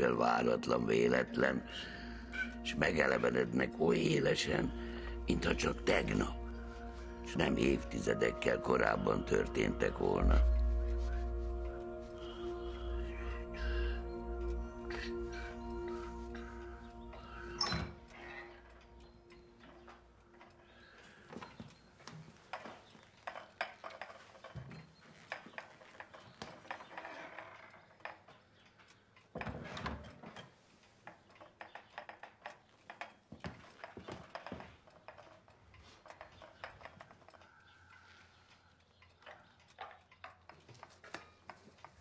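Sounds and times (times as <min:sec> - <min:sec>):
small knocks and clicks: 0:16.4 - 0:42.0.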